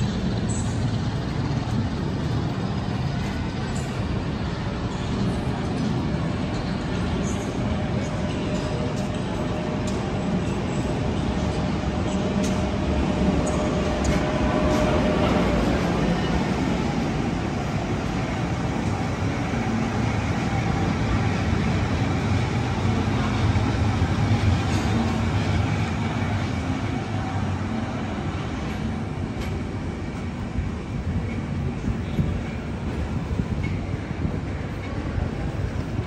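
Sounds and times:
train rumbling past: 0:00.0 - 0:36.0.

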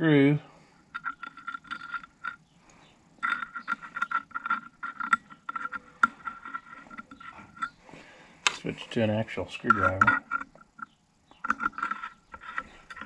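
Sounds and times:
metallic tool clicks and scrapes: 0:00.9 - 0:02.4, 0:03.2 - 0:07.8, 0:09.6 - 0:13.0.

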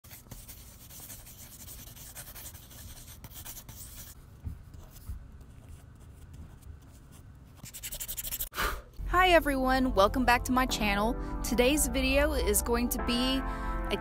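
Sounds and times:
pencil scratching on paper: 0:00.0 - 0:04.2, 0:04.8 - 0:08.5
marker pen strokes: 0:00.1 - 0:08.5.

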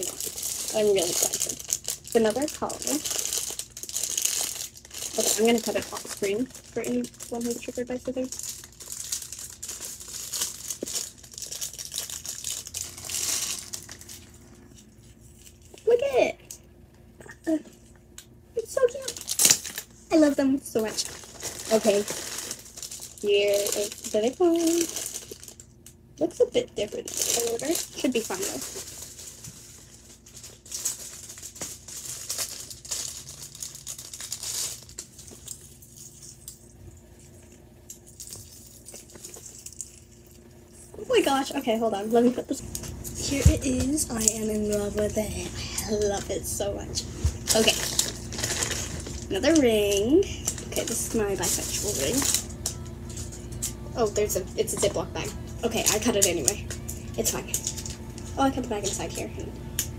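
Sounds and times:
packaging rustling: 0:00.0 - 0:15.9, 0:20.8 - 0:25.7, 0:27.0 - 0:36.6, 0:47.2 - 0:53.8
plastic bag crinkling: 0:00.0 - 0:16.2, 0:18.8 - 0:59.9.

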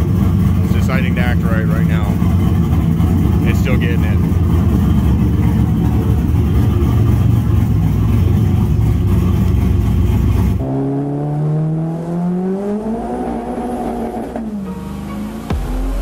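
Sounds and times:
car engine idling: 0:00.0 - 0:10.8
car engine accelerating: 0:00.0 - 0:16.0.

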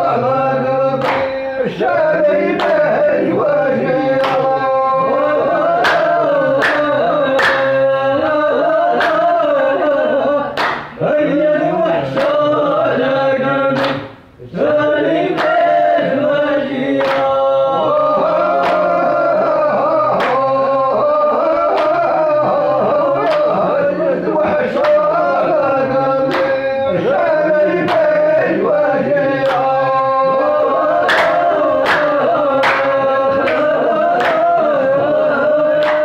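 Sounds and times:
men singing folk song: 0:00.0 - 0:36.0
handclaps: 0:00.8 - 0:01.4, 0:02.5 - 0:03.0, 0:04.0 - 0:09.5, 0:10.5 - 0:11.0, 0:12.1 - 0:12.4, 0:13.7 - 0:14.2, 0:15.3 - 0:15.8, 0:16.9 - 0:23.7, 0:24.7 - 0:25.4, 0:26.0 - 0:28.3, 0:29.3 - 0:36.0.

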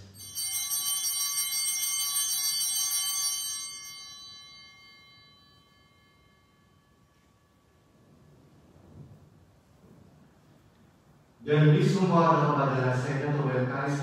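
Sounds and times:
altar bells ringing: 0:00.0 - 0:08.3.

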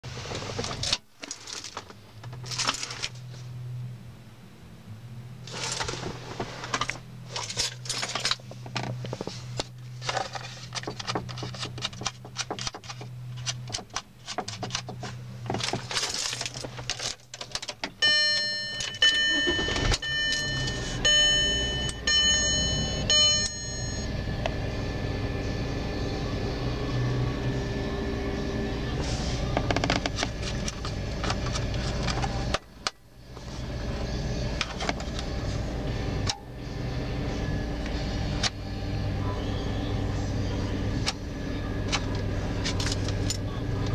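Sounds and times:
steady low hum: 0:00.1 - 0:43.9
electronic warning chime: 0:18.0 - 0:28.8.

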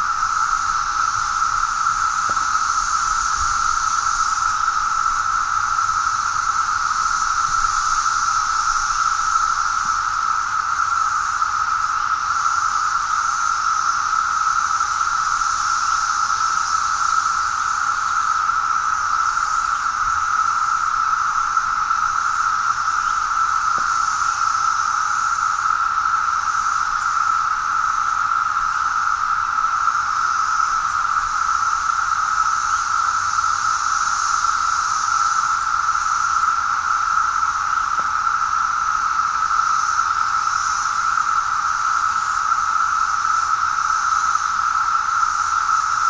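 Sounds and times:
cicadas whirring drone: 0:00.0 - 0:46.0
faint high hiss: 0:00.0 - 0:46.0.

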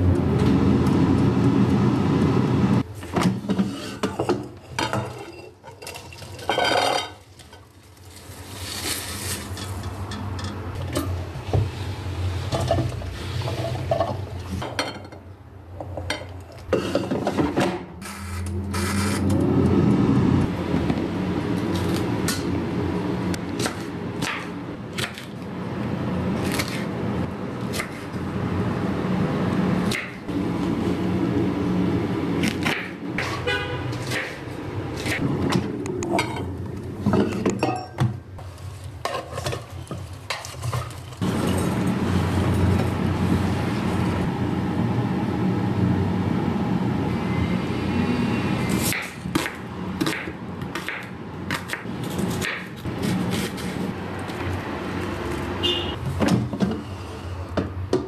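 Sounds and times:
air fryer fan hum: 0:00.0 - 0:02.8, 0:41.2 - 0:47.3.

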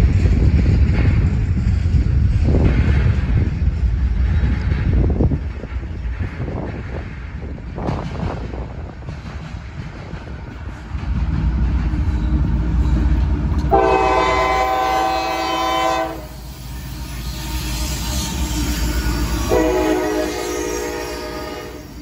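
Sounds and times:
locomotive rumble: 0:00.0 - 0:22.0
train wheels passing: 0:00.0 - 0:22.0
locomotive air horn blasts: 0:13.7 - 0:22.0.

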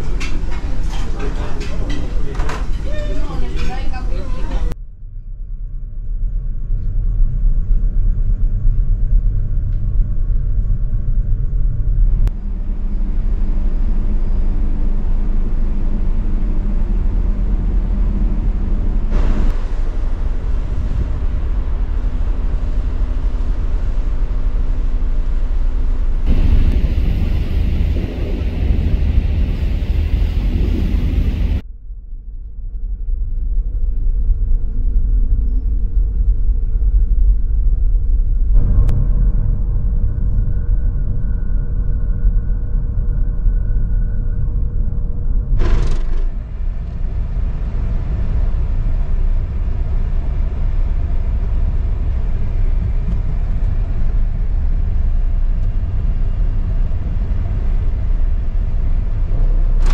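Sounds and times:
ship engines rumbling: 0:00.0 - 0:04.8, 0:12.1 - 0:31.6.

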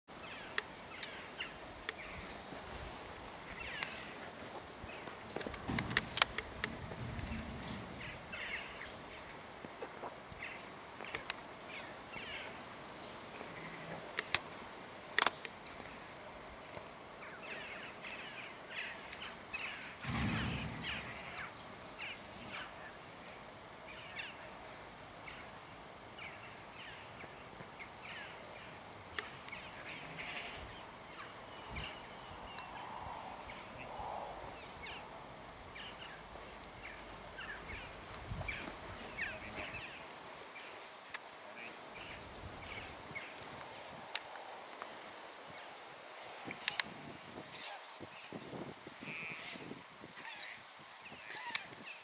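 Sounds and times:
birds chirping: 0:03.5 - 0:09.4, 0:17.2 - 0:43.9
brief low rumble: 0:20.0 - 0:21.6.

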